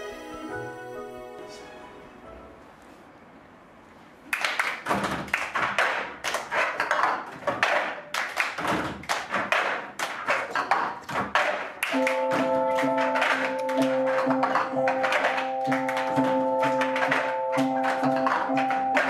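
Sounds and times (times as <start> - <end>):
hand claps: 4.3 - 19.0
plastic cups tapped on wooden tables: 8.6 - 19.0.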